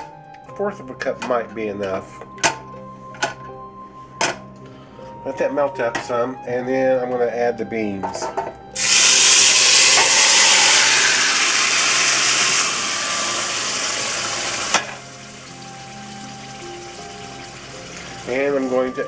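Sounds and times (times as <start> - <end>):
beans sizzling in hot fat: 8.8 - 19.0.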